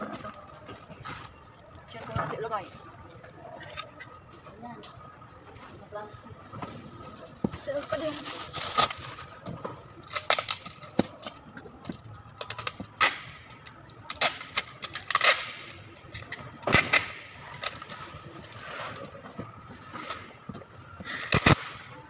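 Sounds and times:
packing tape pulled off dispenser: 7.8s - 9.4s, 10.0s - 11.4s, 12.3s - 19.2s, 21.1s - 22.0s.

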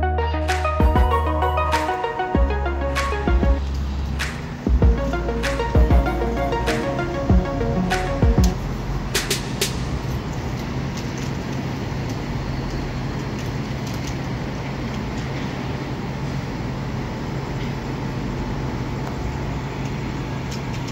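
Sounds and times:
low hum: 0.0s - 9.2s
city traffic: 0.0s - 20.9s.

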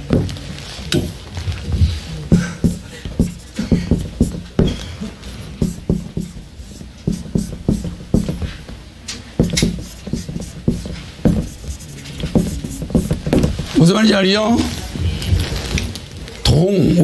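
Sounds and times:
marker pen writing on whiteboard: 0.0s - 1.2s, 2.3s - 8.8s, 9.4s - 13.8s.

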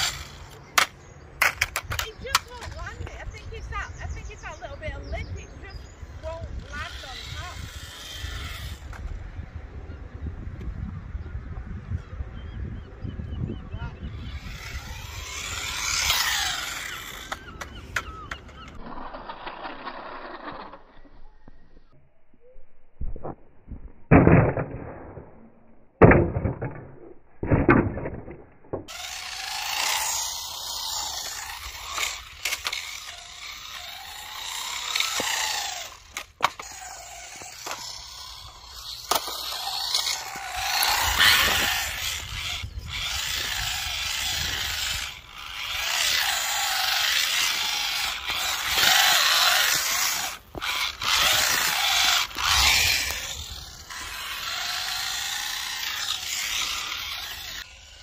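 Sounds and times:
toy car motor whining: 0.0s - 9.3s, 13.9s - 21.9s, 28.9s - 58.0s
toy car landing knocks: 26.0s - 33.4s.

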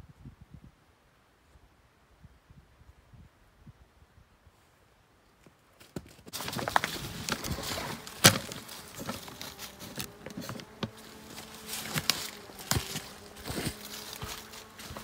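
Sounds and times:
footsteps on snow and leaves: 6.3s - 15.0s.

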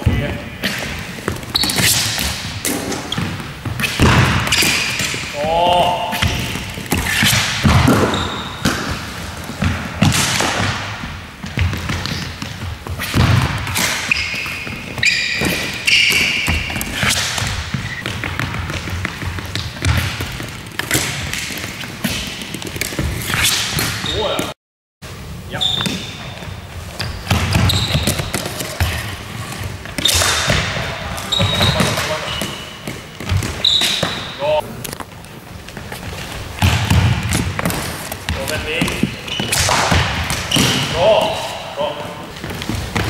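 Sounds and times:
short high squeaks: 14.0s - 18.0s.

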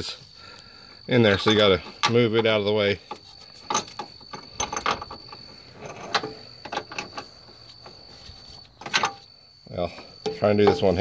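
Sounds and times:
metal bolt clicks and knocks: 1.3s - 2.6s, 3.6s - 7.3s, 8.8s - 9.2s.

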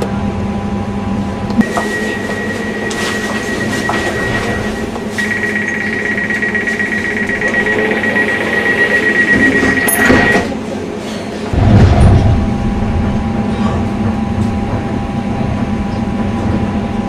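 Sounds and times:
steady high warning tone: 0.8s - 11.2s
rapid pulsing beep: 1.6s - 10.6s.

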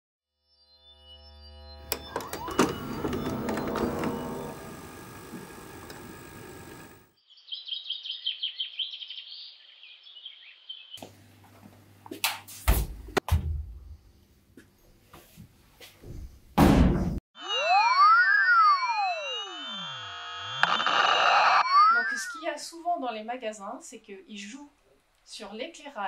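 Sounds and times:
high birdsong chirping: 7.2s - 11.0s
crackling noisy sound effect: 20.1s - 22.4s.

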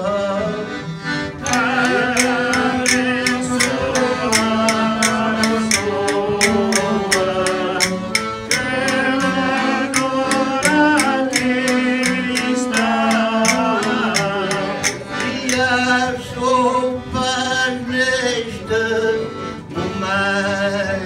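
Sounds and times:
man singing into a microphone: 0.0s - 21.0s
small band playing folk music: 0.0s - 21.0s
steady tapping beat: 1.3s - 16.2s.

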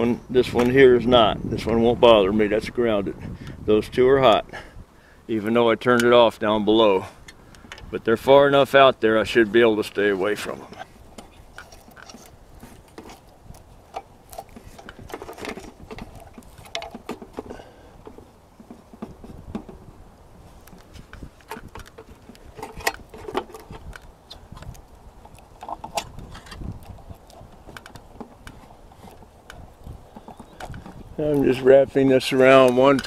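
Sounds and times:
hands handling wire and metal: 9.8s - 19.8s, 20.5s - 33.0s.

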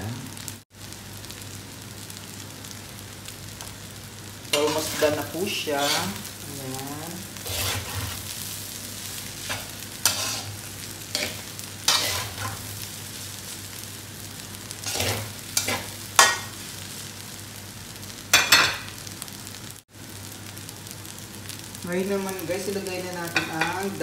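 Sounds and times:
rice sizzling in a pan: 0.0s - 24.0s
metal spatula scraping a wok: 4.5s - 6.3s, 7.4s - 8.5s, 9.3s - 12.8s, 14.8s - 16.5s.

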